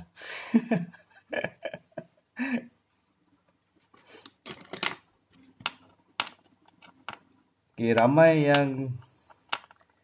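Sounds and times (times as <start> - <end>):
man laughing breathily: 0.0 - 2.8.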